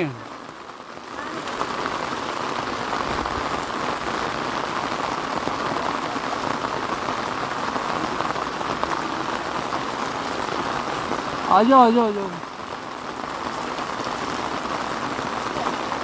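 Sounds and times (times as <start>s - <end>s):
heavy rain on road: 0.0s - 16.0s.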